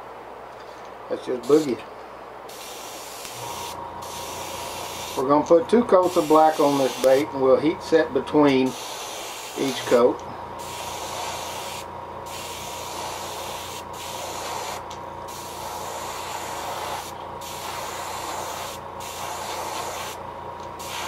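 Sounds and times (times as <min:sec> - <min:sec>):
airbrush spraying paint hiss: 0:02.5 - 0:05.4, 0:06.0 - 0:07.2, 0:08.6 - 0:10.0, 0:10.6 - 0:20.2, 0:20.8 - 0:21.0.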